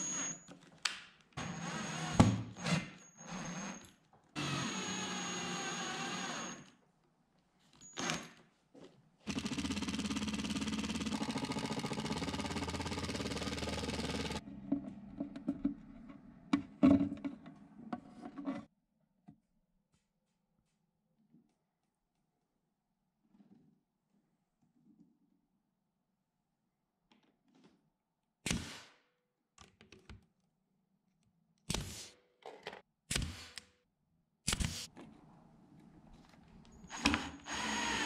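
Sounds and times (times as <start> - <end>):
drill driving screws into wood: 1.4 - 6.7, 8.0 - 8.4, 9.3 - 14.4, 36.8 - 38.0.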